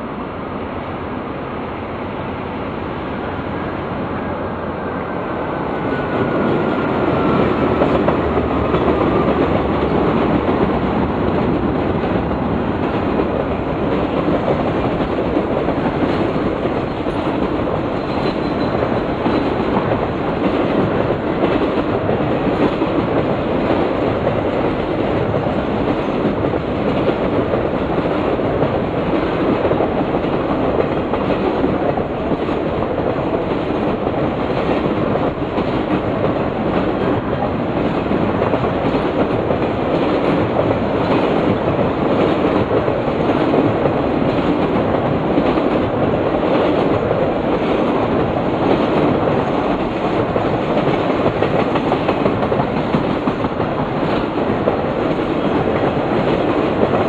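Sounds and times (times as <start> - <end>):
locomotive whine: 0.0 - 14.2
train wheels rumbling on rails: 0.0 - 57.0.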